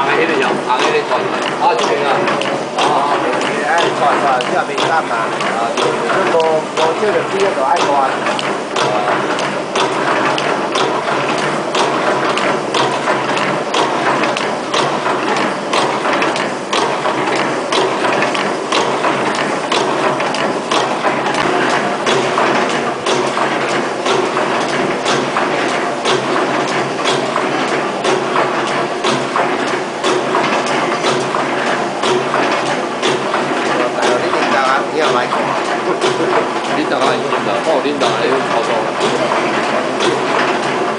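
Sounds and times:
machine clattering: 0.0 - 40.9
sharp machine click: 0.7 - 27.4.

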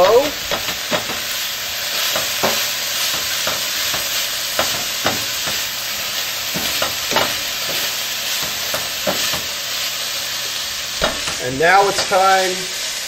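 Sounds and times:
spatula knocking and scraping pan: 0.0 - 1.3, 2.0 - 5.7, 6.4 - 9.6, 11.0 - 12.2
vegetables sizzling in oil: 0.0 - 13.0.

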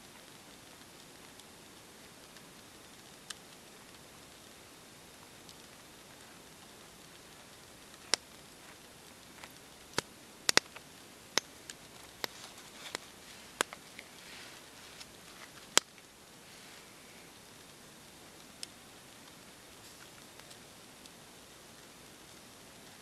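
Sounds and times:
wooden stick clicks and taps: 7.9 - 10.8, 11.4 - 14.1, 15.0 - 16.0
handling rustle: 11.7 - 17.3.

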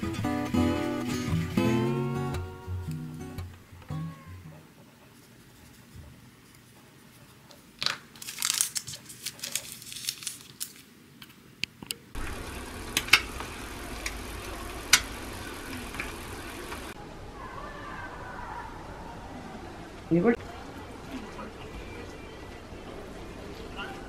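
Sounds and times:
paper rustling and crinkling: 7.8 - 10.9
eggs frying and hissing: 12.2 - 17.0.

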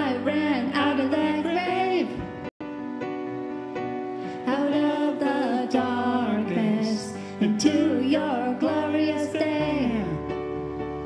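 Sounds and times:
woman singing: 0.0 - 2.2, 4.5 - 10.3
electric keyboard chords: 0.0 - 11.0.

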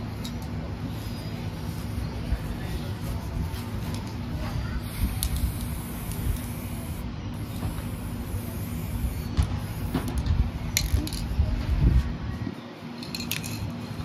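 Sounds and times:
spray can hissing: 0.2 - 11.4.

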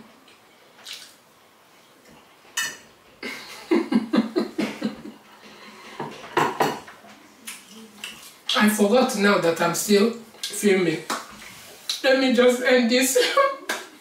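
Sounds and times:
plate clattering on counter: 5.9 - 6.9.

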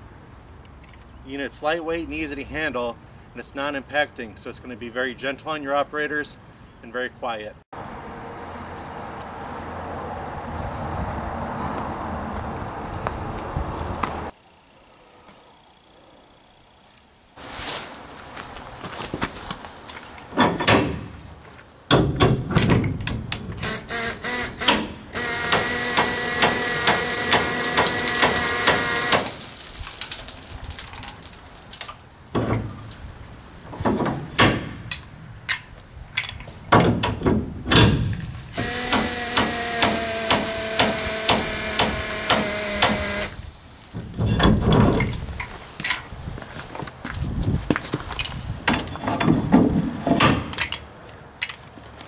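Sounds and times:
air tool hissing and whining: 23.6 - 29.8, 38.5 - 43.4
metal clicks and clanks of tool: 34.4 - 37.2, 50.1 - 51.6
air tool trigger blips: 38.6 - 43.4.

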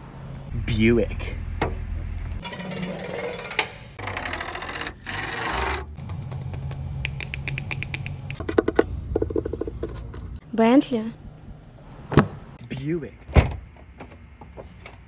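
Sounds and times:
fingers rubbing metal wheel: 2.4 - 6.0.

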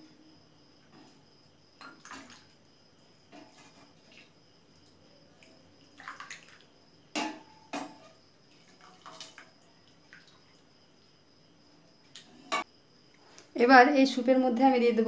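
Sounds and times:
liquid pouring and dripping: 4.0 - 6.7, 7.8 - 10.7
ladle knocking against pot: 7.2 - 8.1.

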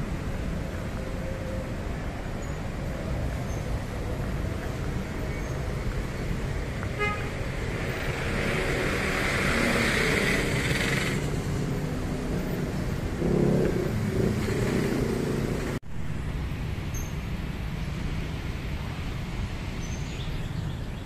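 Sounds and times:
passing engine: 0.0 - 15.8
road traffic rumble: 0.0 - 21.0.

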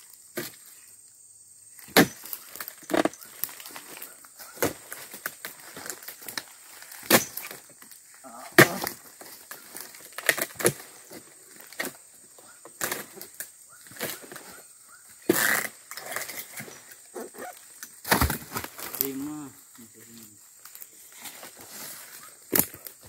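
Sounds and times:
harvesting chisel chopping knocks: 1.9 - 3.2, 18.0 - 18.7.

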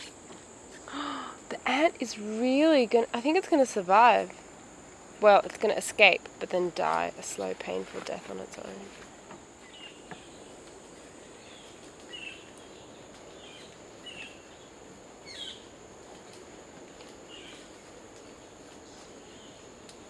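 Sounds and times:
insects droning: 0.0 - 20.0
bird chirping: 9.6 - 10.6.

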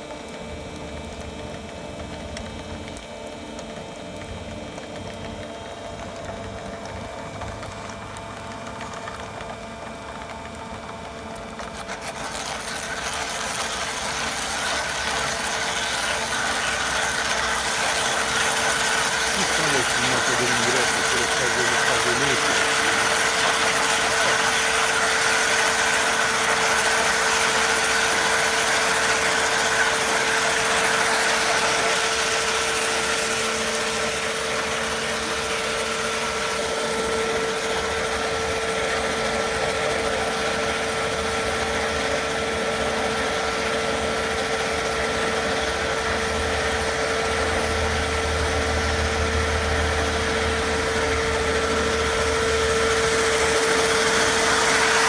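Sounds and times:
chain saw cutting stone: 11.7 - 24.6.

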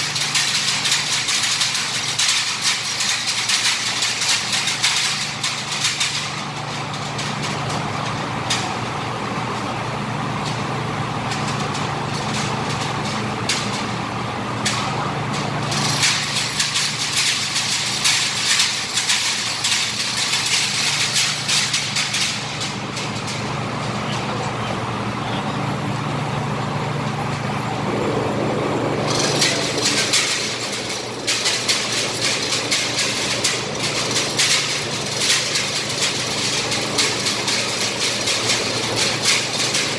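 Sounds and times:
chain hoist clicking and rattling: 0.0 - 8.7, 14.6 - 24.3, 29.1 - 39.9
low machine hum: 0.0 - 39.9.

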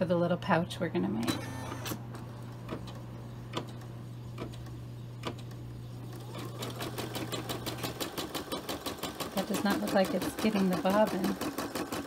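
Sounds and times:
sewing machine stitching: 6.1 - 12.0.

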